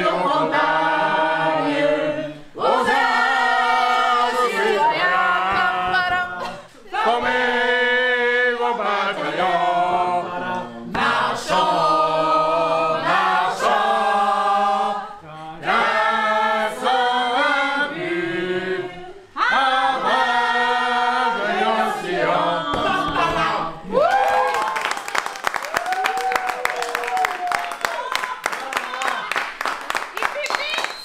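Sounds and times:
group singing unaccompanied: 0.0 - 24.0.

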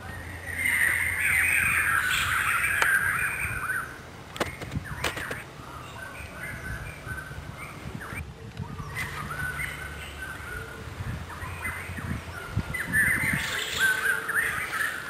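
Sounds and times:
birds calling harshly: 0.0 - 15.0
sharp clicks: 4.3 - 5.5.

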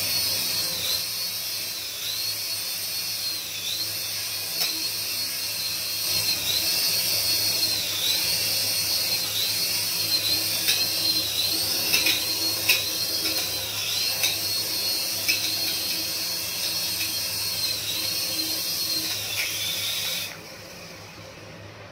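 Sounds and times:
toy helicopter rotors whining: 0.0 - 21.8.

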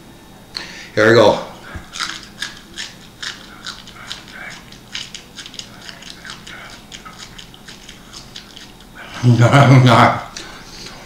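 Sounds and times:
man chewing with wet crunching: 1.6 - 9.1.

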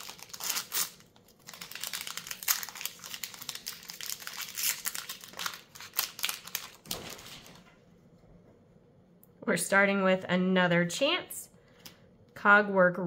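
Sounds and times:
wrapper crinkling as torn open: 0.0 - 7.6.

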